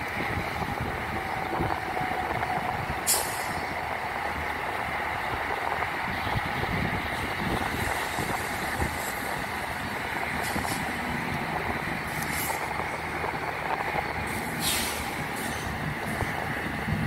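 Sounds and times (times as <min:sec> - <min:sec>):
diesel locomotive idling: 0:00.0 - 0:17.0
air hissing: 0:03.0 - 0:03.8, 0:07.4 - 0:11.2, 0:12.0 - 0:16.5.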